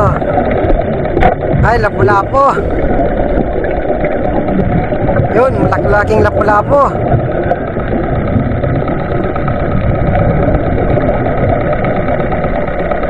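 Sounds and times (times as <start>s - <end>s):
faint steady hum: 0.0s - 13.0s
muffled underwater rumble: 0.0s - 13.0s.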